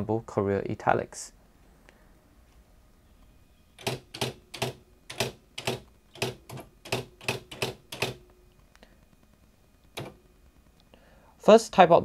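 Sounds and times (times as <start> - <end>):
typewriter print hammer strikes: 3.8 - 8.2, 9.9 - 10.2.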